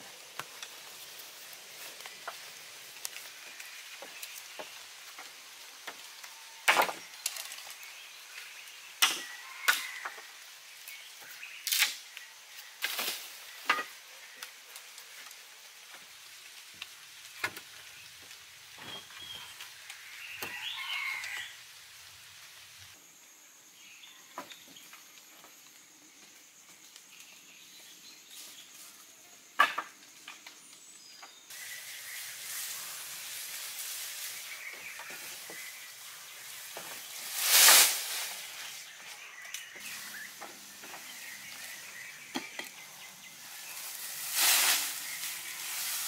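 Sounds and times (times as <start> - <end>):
faint forest background: 0.0 - 46.0
wooden poles knocking together: 29.6 - 30.4
rustling scrape: 31.6 - 39.0, 43.5 - 46.0.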